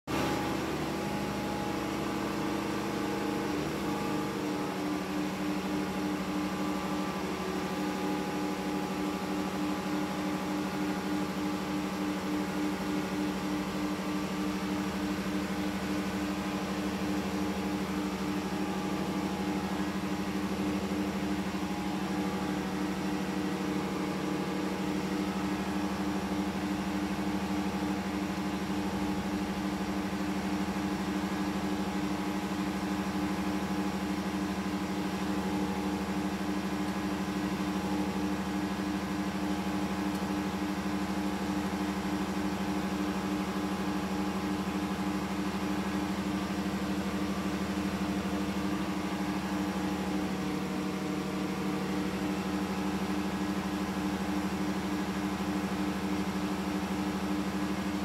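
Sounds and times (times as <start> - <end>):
engine-room machinery droning: 0.0 - 58.0.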